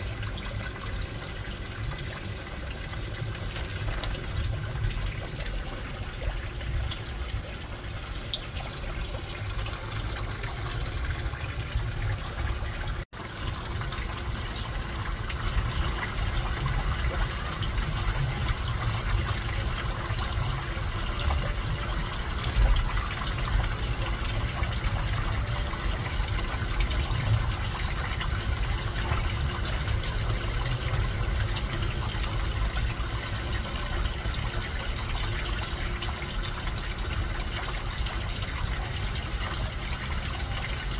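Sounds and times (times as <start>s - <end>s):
aquarium water trickling: 0.0s - 40.9s.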